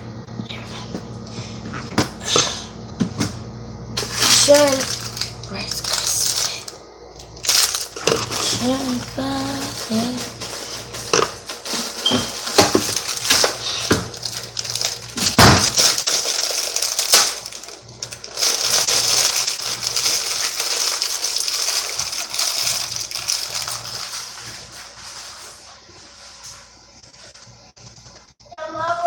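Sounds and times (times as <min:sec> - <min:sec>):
plastic bag crinkling: 0:04.0 - 0:25.5.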